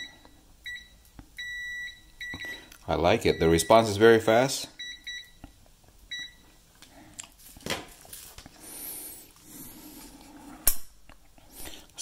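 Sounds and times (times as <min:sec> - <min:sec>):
multimeter beep: 0:00.0 - 0:02.7, 0:03.3 - 0:03.9, 0:04.8 - 0:05.4, 0:06.1 - 0:06.5.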